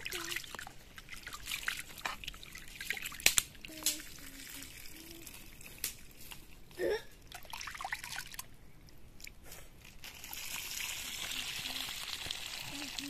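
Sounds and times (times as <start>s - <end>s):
water sloshing in a steel pot: 0.0s - 6.6s.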